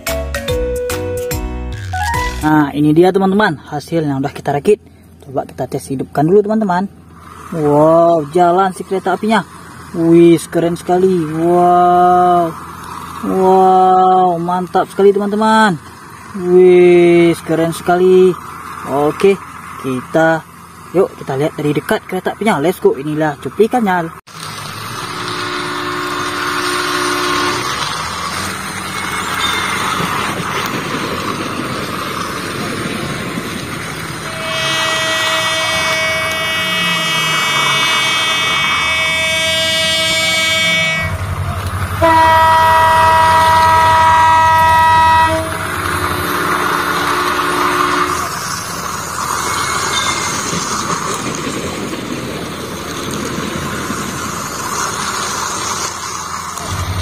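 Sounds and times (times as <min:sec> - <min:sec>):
moving train rumble: 0:00.0 - 0:57.0
train horn blasts: 0:24.9 - 0:28.2, 0:34.2 - 0:48.6.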